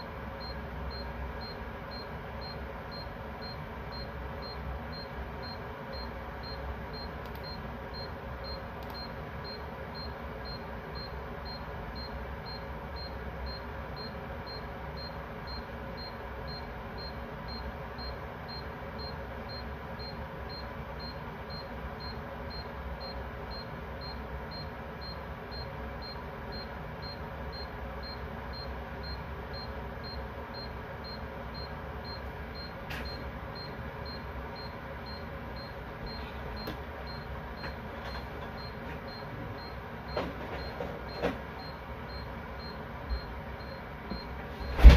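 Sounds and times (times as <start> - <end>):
background hum and hiss: 0.0 - 44.9
electronic alarm beeping: 0.4 - 44.9.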